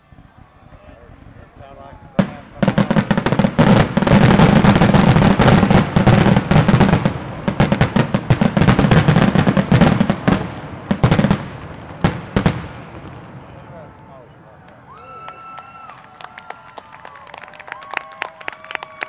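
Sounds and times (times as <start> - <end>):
firework crackling: 0.0 - 13.8.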